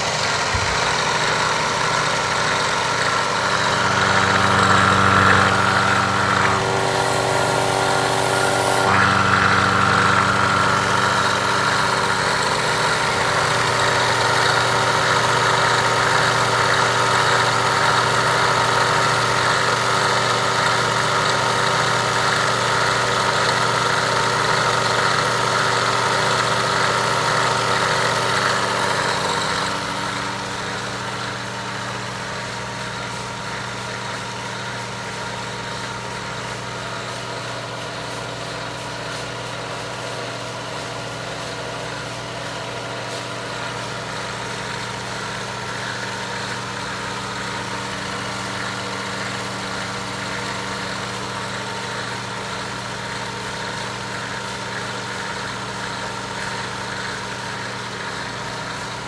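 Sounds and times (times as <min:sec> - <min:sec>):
electric motor humming: 0:00.0 - 0:32.8.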